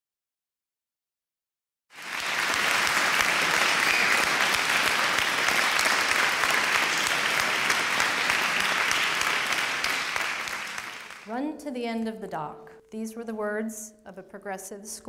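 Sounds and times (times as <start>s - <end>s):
audience applauding: 1.9s - 11.3s.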